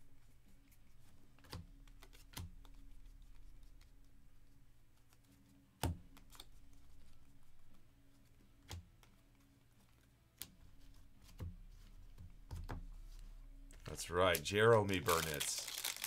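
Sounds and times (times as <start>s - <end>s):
cards tapping and clicking: 1.4s - 3.9s, 13.7s - 16.0s.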